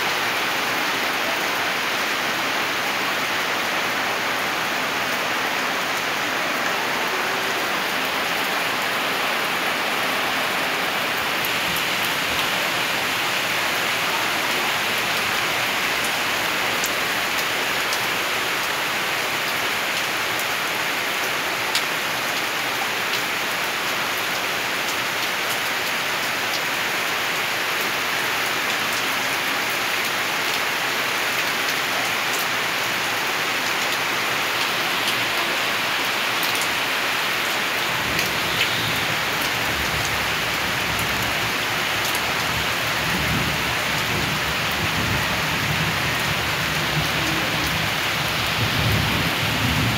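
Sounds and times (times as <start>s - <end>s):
heavy rain falling: 0.0s - 49.9s.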